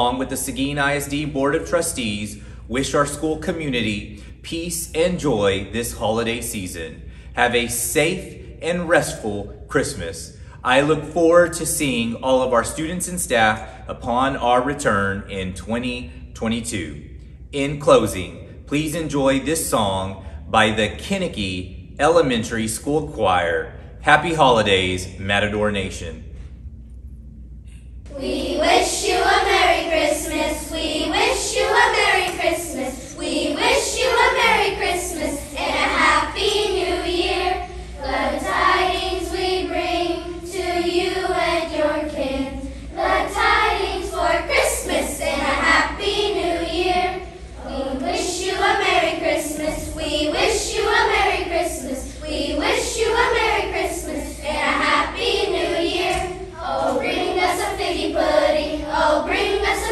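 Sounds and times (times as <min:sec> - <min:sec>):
children's choir singing: 0:28.1 - 0:59.9.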